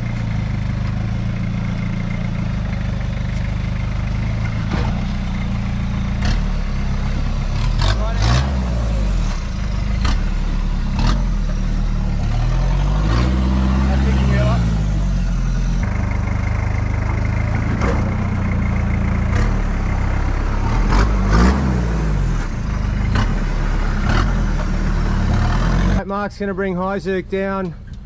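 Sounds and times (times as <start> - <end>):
off-road truck engine: 0.0 - 28.0.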